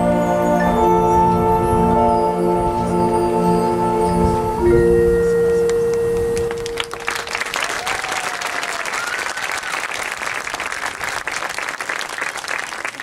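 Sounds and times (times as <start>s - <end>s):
crowd applauding: 5.5s - 13.0s.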